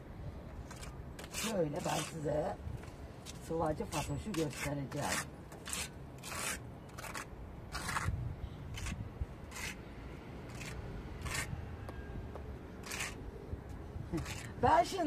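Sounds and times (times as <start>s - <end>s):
trowel scraping plaster on wall: 0.7s - 2.4s, 3.8s - 8.1s, 8.7s - 9.8s, 10.5s - 11.5s, 12.8s - 13.2s, 14.1s - 14.6s.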